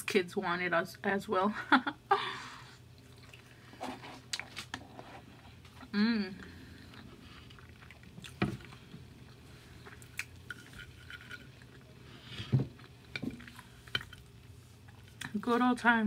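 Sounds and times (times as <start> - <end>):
chewing with wet mouth noises: 2.8 - 15.4.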